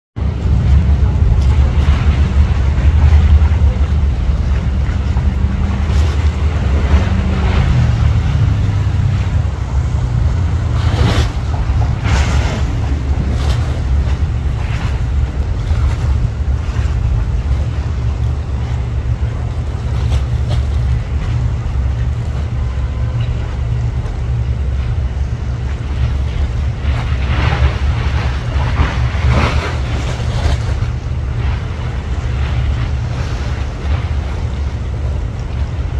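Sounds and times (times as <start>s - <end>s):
ferry engines rumbling: 0.2s - 35.9s
water noise: 0.2s - 35.9s
wind buffeting microphone: 0.2s - 35.9s.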